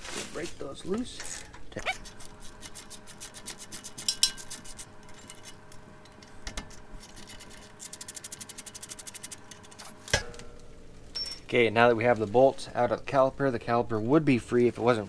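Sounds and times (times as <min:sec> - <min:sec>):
hand ratchet clicking: 0:01.3 - 0:05.6
sharp metal clank: 0:04.0 - 0:04.6, 0:10.0 - 0:11.5.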